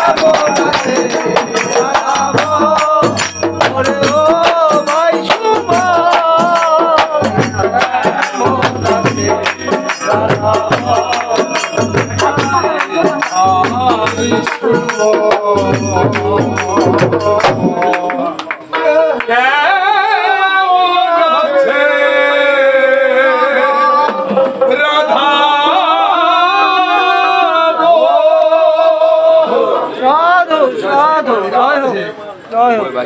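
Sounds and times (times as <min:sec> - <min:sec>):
hand percussion and drum: 0:00.0 - 0:19.0, 0:24.0 - 0:24.9
man singing: 0:00.0 - 0:30.7.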